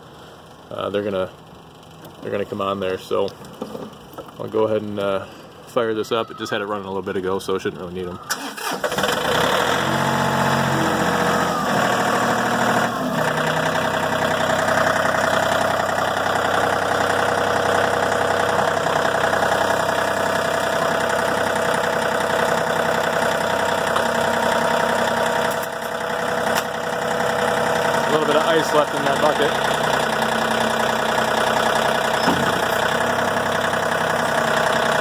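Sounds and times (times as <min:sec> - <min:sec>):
diesel tractor engine running: 0:08.2 - 0:35.0.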